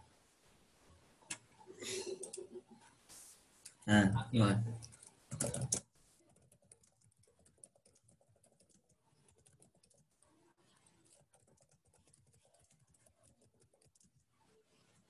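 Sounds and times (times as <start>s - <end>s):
faint keyboard typing: 1.3s - 2.9s, 4.7s - 15.0s.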